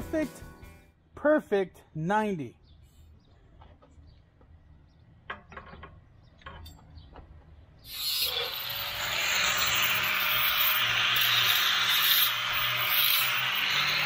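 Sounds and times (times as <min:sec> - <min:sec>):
angle grinder grinding steel: 0:07.9 - 0:14.0.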